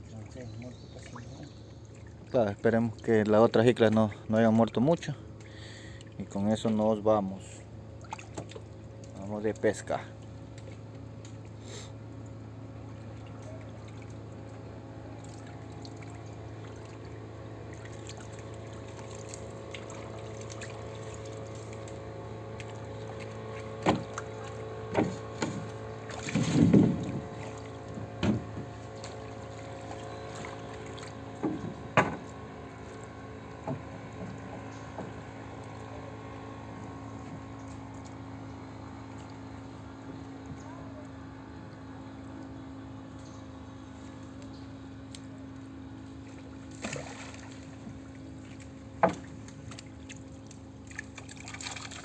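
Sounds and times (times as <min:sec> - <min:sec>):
water sloshing in a canoe: 0:00.0 - 0:06.8, 0:07.4 - 0:42.7, 0:45.5 - 0:52.0
steady low hum: 0:00.0 - 0:52.0
knocks on a boat: 0:23.8 - 0:28.8, 0:31.4 - 0:32.4, 0:33.6 - 0:35.2, 0:49.0 - 0:49.4.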